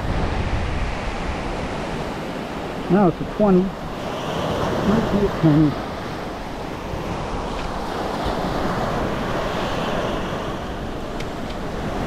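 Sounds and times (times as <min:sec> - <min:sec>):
surf rushing: 0:00.0 - 0:12.0
wind buffeting microphone: 0:00.0 - 0:12.0.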